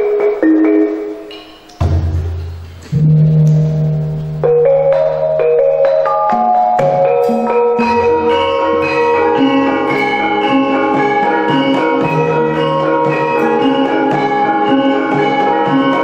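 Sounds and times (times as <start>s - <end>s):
gamelan with bronze pot gongs: 0.0s - 16.0s
sustained low tones: 1.8s - 5.4s.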